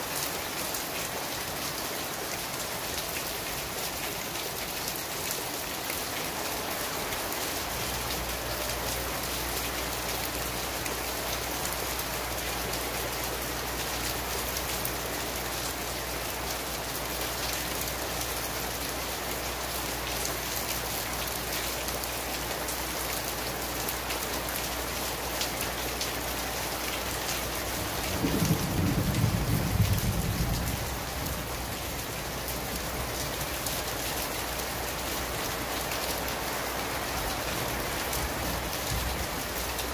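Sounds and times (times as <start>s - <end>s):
heavy rain pouring: 0.0s - 39.9s
low rumble of thunder: 27.8s - 33.6s.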